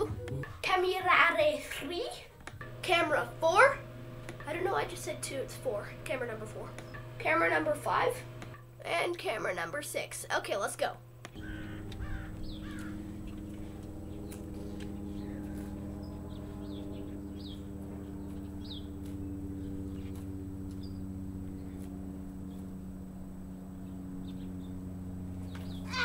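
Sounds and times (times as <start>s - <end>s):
low hum: 0.0s - 26.0s
small birds chirping: 11.3s - 26.0s.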